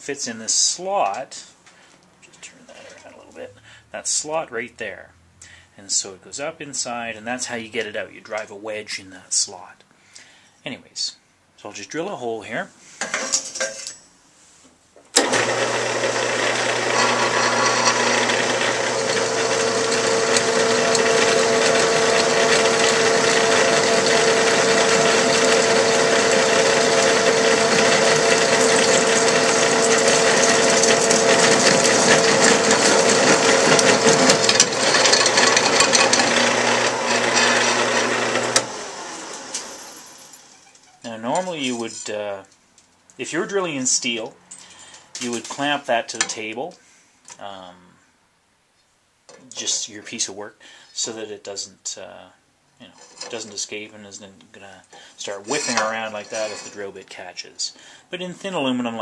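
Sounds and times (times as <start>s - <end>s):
drill press humming and whining: 15.2s - 40.4s.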